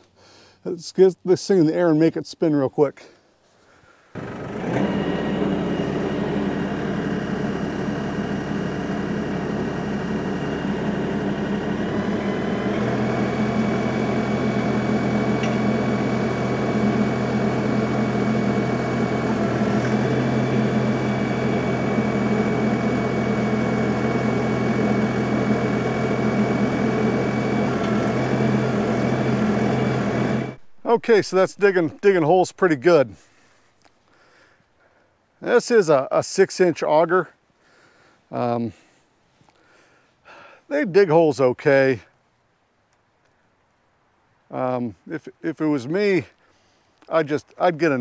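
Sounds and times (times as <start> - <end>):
auger boring into ground: 4.1 - 33.0
diesel tractor engine running: 4.2 - 33.4.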